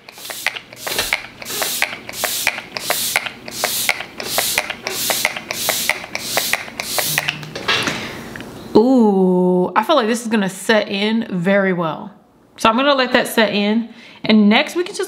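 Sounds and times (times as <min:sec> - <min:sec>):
spray bottle pumps: 0:00.0 - 0:07.5.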